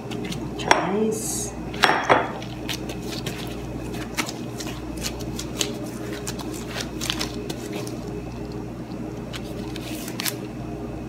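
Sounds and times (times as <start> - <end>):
steady low hum: 0.0 - 11.0
hands kneading dough: 1.8 - 10.5.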